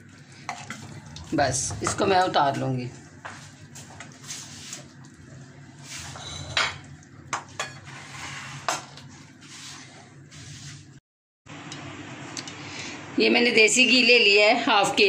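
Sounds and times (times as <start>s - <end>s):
bowl being moved: 5.8s - 6.9s.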